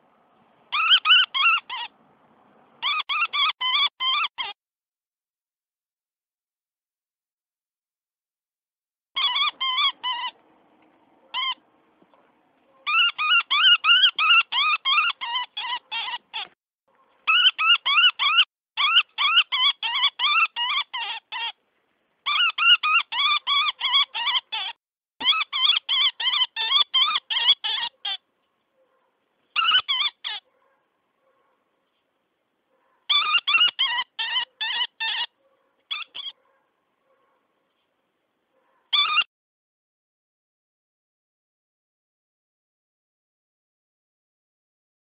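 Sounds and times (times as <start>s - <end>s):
woodpecker distress call: 0.7s - 1.9s, 2.8s - 4.6s, 9.2s - 10.4s, 12.9s - 16.6s, 17.2s - 21.6s, 22.3s - 28.2s, 29.5s - 30.4s, 33.1s - 36.4s, 38.9s - 39.3s.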